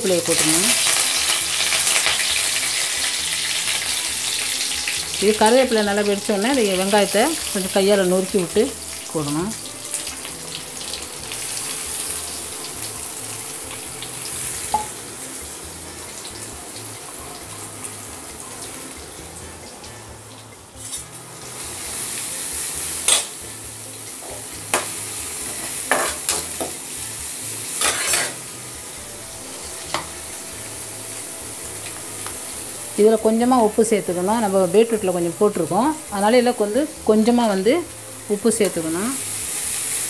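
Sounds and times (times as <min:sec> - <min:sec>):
onions sizzling in hot oil: 0:00.0 - 0:40.0.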